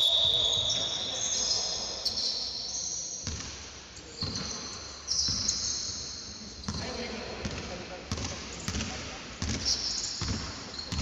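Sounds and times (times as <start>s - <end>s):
sneakers squeaking on wooden court: 0.0s - 11.0s
ball bouncing: 6.6s - 11.0s.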